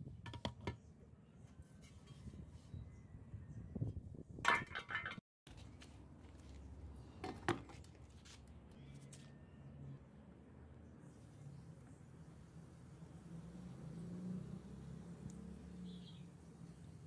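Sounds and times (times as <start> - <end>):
metal hoe head clattering: 4.5 - 5.2.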